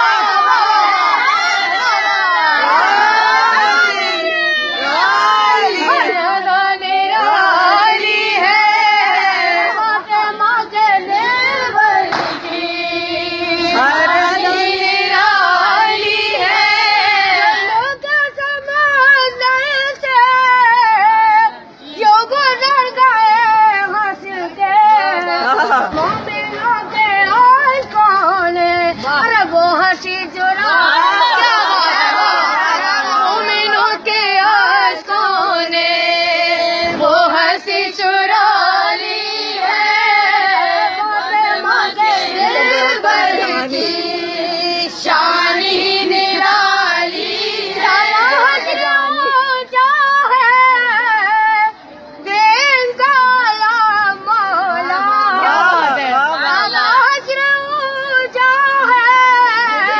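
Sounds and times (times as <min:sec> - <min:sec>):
women singing devotional song: 0:00.0 - 0:59.9.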